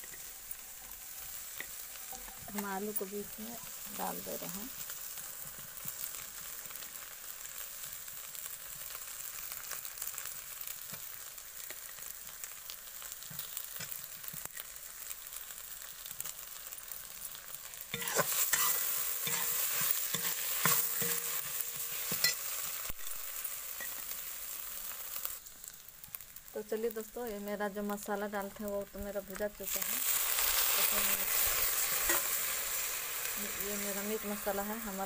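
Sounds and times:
potatoes sizzling in oil: 0:00.0 - 0:35.0
metal spatula scraping pan: 0:18.0 - 0:22.5.

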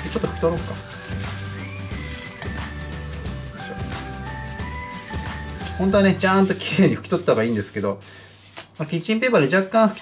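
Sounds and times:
music with held notes and bass: 0:00.0 - 0:06.5.

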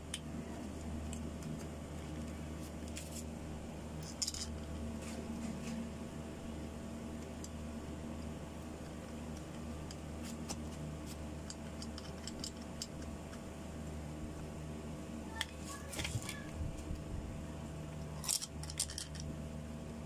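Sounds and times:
steady low hum: 0:00.0 - 0:20.0
metallic clinks of motor parts: 0:11.4 - 0:13.0, 0:18.2 - 0:19.3.

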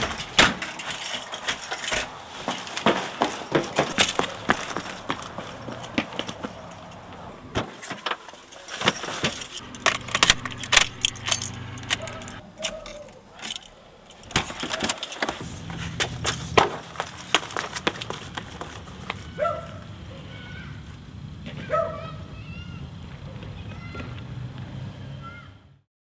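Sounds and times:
car keys jangling: 0:00.0 - 0:18.8
car door and ignition clicks: 0:08.8 - 0:15.4
low steady hum: 0:09.0 - 0:14.7.

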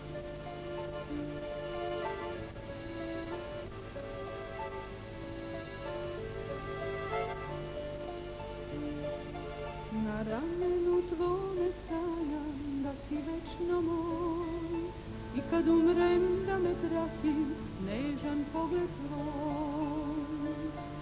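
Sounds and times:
slow ballad melody: 0:00.0 - 0:21.0
woman singing: 0:09.9 - 0:21.0.

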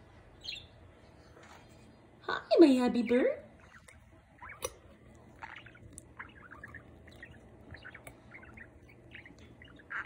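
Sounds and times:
budgerigar warbling and chattering: 0:00.4 - 0:00.7, 0:03.6 - 0:04.8, 0:05.4 - 0:10.0.

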